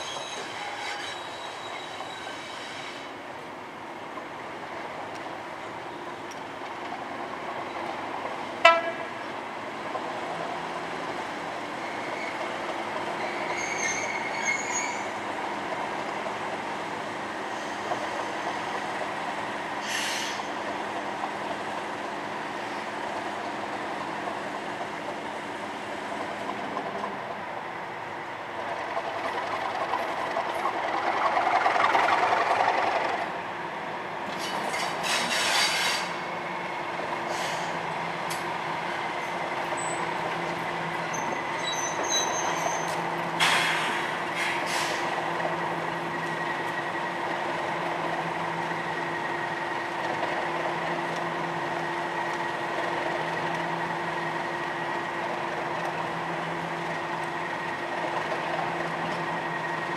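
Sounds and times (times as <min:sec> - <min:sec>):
wheels squealing and clanking: 0:00.0 - 0:03.2, 0:11.7 - 0:15.2, 0:19.8 - 0:20.6, 0:34.3 - 0:36.4, 0:39.2 - 0:47.4
diesel locomotive engine running: 0:15.1 - 0:59.9.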